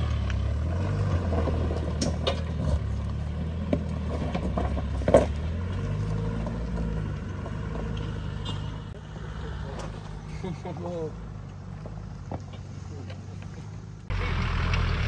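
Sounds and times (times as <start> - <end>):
diesel engine pulling: 0.0 - 15.0
stones knocking under tyres: 0.1 - 8.2.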